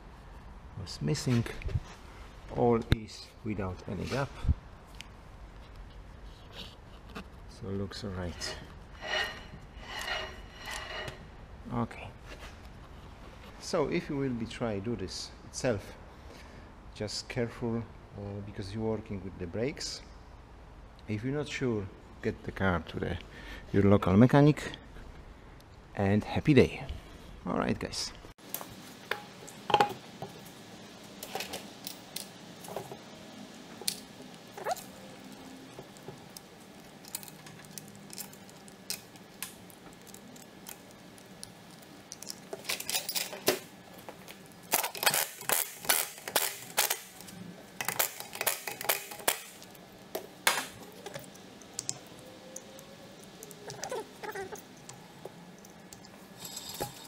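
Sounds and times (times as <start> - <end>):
metal bolts clinking and rattling: 42.1 - 43.6.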